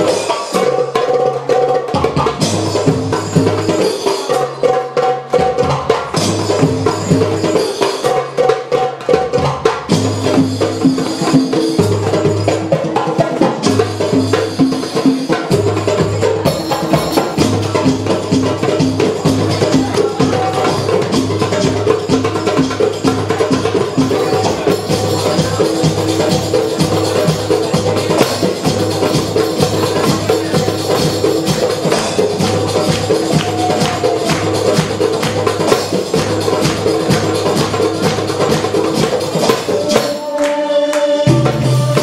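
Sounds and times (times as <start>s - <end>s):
hand drum fast rhythm: 0.0s - 42.0s.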